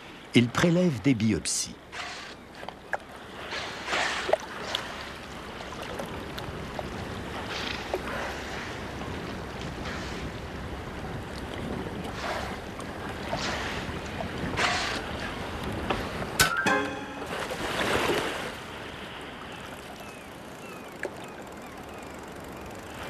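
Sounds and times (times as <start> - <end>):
wind: 0.0 - 23.0
waves slapping around a boat: 1.8 - 16.5, 17.2 - 21.6
whales blowing: 7.2 - 16.4.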